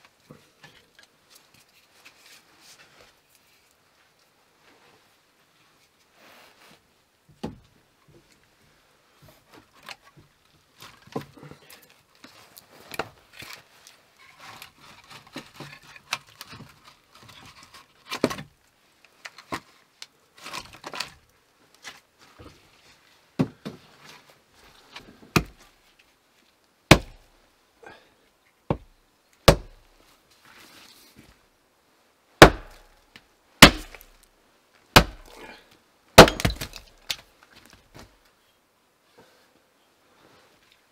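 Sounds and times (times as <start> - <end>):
firewood logs knocking together: 25.3 - 25.6, 26.9 - 27.2, 32.4 - 32.9, 33.6 - 34.2, 35.0 - 35.4, 36.2 - 38.1
axe striking log: 25.4 - 25.6, 26.9 - 27.2, 28.7 - 29.8, 32.4 - 32.9, 33.6 - 34.2, 35.0 - 35.4, 36.2 - 37.2.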